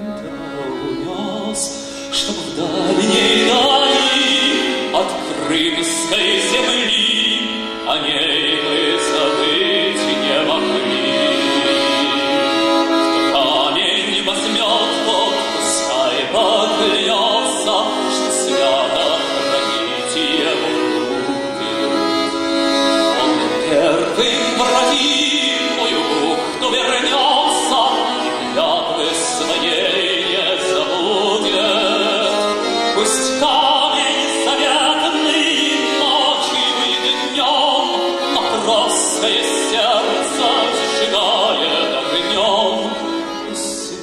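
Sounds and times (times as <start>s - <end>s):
instrumental accompaniment: 0.0s - 44.0s
man singing: 0.0s - 44.0s.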